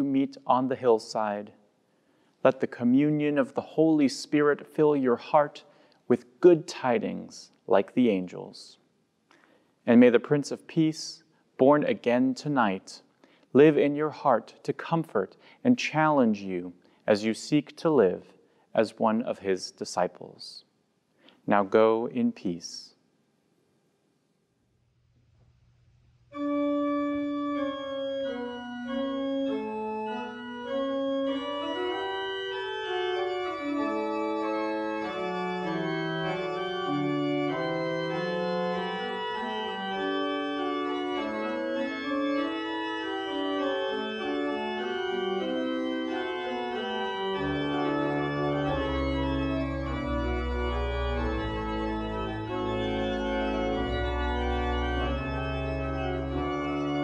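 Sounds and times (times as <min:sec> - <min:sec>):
church organ playing: 0:00.0 - 0:01.5, 0:02.5 - 0:08.6, 0:13.6 - 0:17.9, 0:26.3 - 0:57.0.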